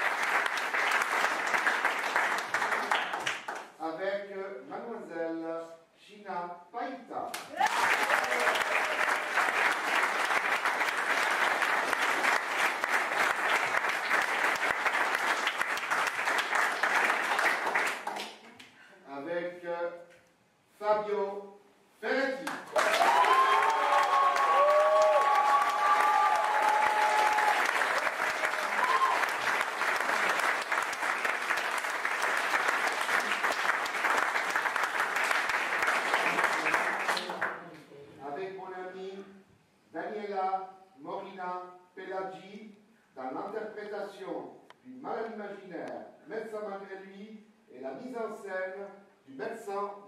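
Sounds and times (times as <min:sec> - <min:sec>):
audience applauding: 0:00.0 - 0:03.7, 0:07.5 - 0:18.4, 0:22.7 - 0:37.6.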